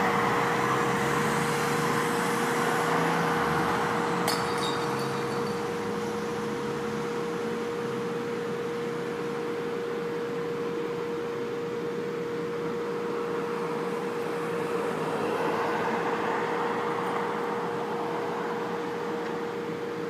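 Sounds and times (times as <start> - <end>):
car passing: 0.0 - 6.7, 13.6 - 19.0
street traffic noise: 0.0 - 20.0.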